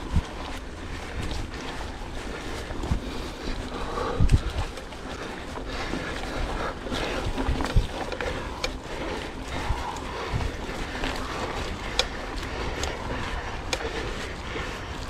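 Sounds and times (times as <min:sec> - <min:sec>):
wind thumping on microphone: 0:00.0 - 0:04.9
bike clicks and rattles: 0:00.0 - 0:15.0
tyre and wind rush: 0:00.0 - 0:15.0.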